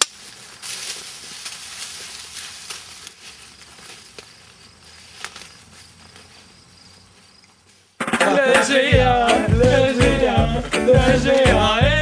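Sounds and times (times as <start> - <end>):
rustling of tall plants: 0.0 - 8.0
faint crickets: 0.2 - 8.0.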